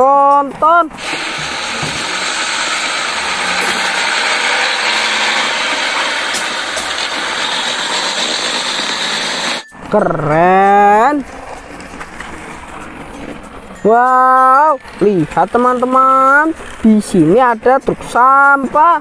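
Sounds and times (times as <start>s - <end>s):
truck diesel engine passing: 0.9s - 9.7s
street traffic: 0.9s - 9.9s, 11.1s - 18.2s.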